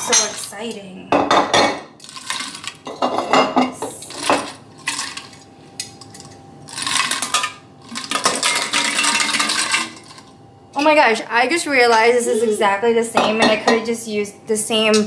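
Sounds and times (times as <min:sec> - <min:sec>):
coffee pods clattering against glass: 0:06.8 - 0:10.2.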